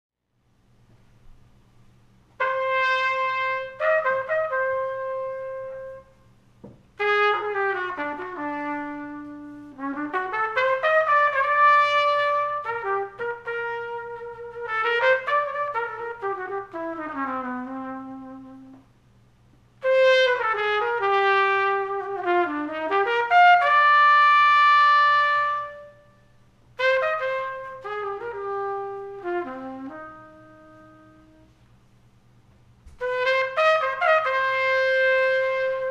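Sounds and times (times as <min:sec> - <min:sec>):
faint low hum: 0:00.2 - 0:35.9
jazz trumpet playing: 0:02.3 - 0:19.0, 0:19.8 - 0:35.9.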